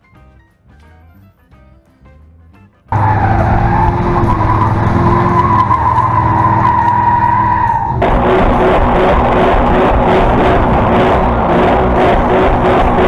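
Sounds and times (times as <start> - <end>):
car engine running: 2.9 - 13.0
tyres squealing on asphalt: 2.9 - 13.0.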